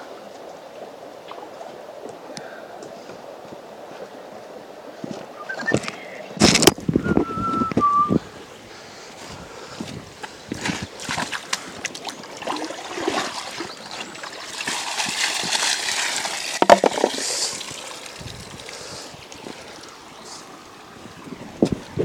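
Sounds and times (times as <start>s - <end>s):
stones knocking: 5.7s - 6.8s, 16.4s - 17.4s
water splashing in a bucket: 10.6s - 20.0s.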